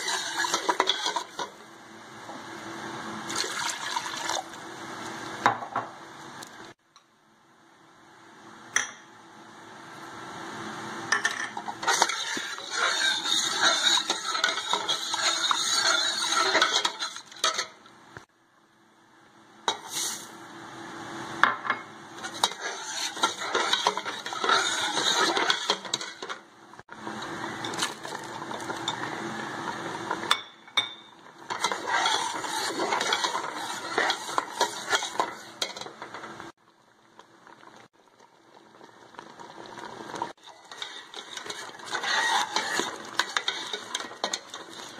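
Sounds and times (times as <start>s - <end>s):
metal spoon scraping steel pot: 0.0s - 1.5s, 11.6s - 17.8s, 22.2s - 26.4s, 31.5s - 35.9s, 40.4s - 44.9s.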